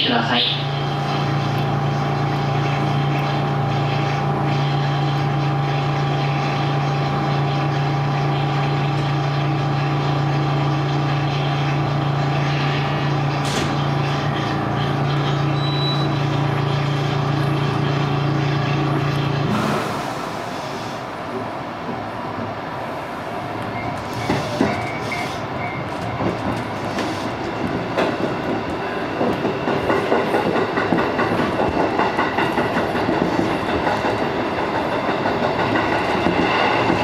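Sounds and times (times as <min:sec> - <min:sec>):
train equipment hum: 0:00.0 - 0:37.0.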